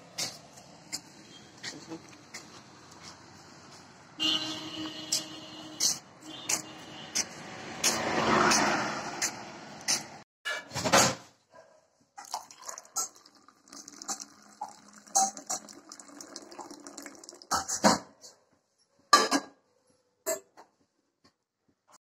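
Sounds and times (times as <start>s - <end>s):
hot water pouring into mug: 12.2s - 17.8s.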